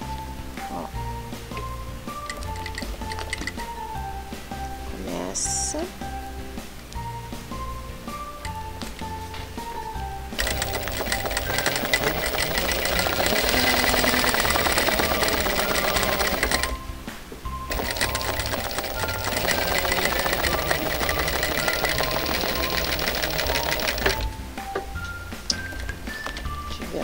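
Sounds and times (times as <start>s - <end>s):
sewing machine running fast: 10.4s - 16.8s, 17.7s - 24.3s.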